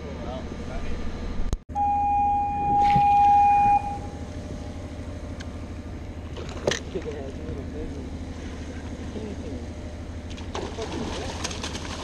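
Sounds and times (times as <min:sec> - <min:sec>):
boat engine humming: 0:00.0 - 0:12.0
electronic beep: 0:01.8 - 0:04.2.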